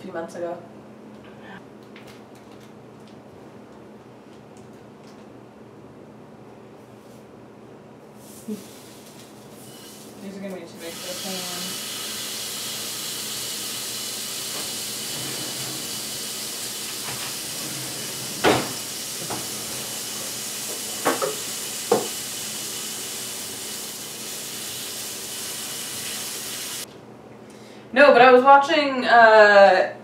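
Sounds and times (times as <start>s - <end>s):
food sizzling in a frying pan: 10.9s - 15.1s, 18.5s - 26.8s.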